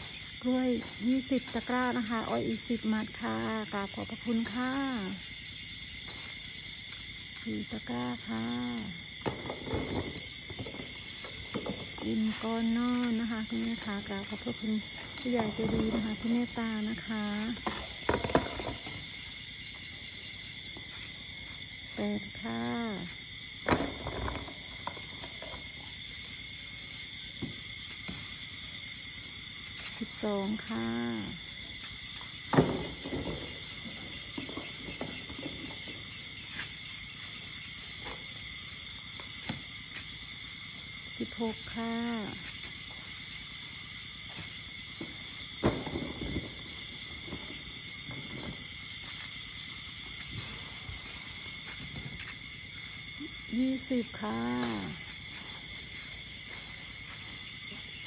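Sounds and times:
night insects droning: 0:00.0 - 0:58.0
rustling and thuds: 0:09.0 - 0:12.6, 0:13.8 - 0:19.8, 0:23.5 - 0:25.9, 0:31.6 - 0:40.3, 0:42.4 - 0:53.0, 0:54.5 - 0:58.0
plastic baskets knocking on ground: 0:09.2 - 0:10.9, 0:17.6 - 0:19.0, 0:23.6 - 0:25.1, 0:32.5 - 0:35.8, 0:45.0 - 0:48.6.

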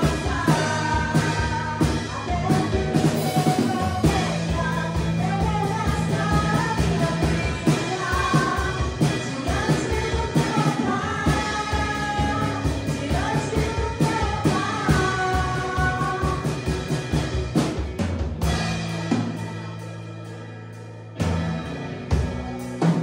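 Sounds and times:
women singing worship song: 0:00.0 - 0:17.3
drum kit steady beat: 0:00.0 - 0:23.0.

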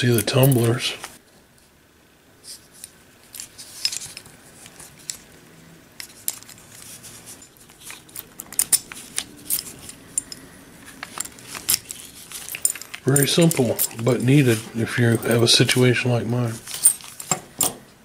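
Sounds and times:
small metal parts clicking: 0:06.0 - 0:15.4, 0:16.7 - 0:17.8.

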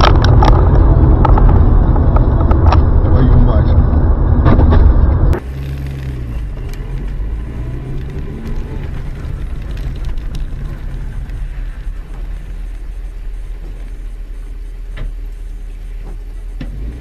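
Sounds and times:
car engine hum in cabin: 0:00.0 - 0:17.0
road and engine rumble: 0:00.0 - 0:17.0.

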